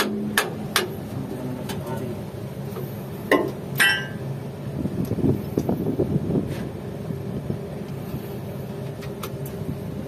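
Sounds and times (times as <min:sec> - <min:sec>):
hammer striking steel: 0:03.3 - 0:04.2
ringing metal clank: 0:03.3 - 0:04.2.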